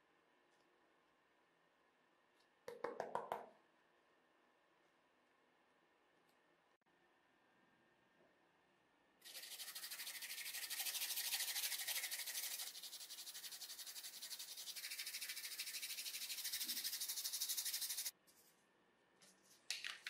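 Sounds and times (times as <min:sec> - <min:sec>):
charcoal scraping on sandpaper: 0:09.3 - 0:18.1.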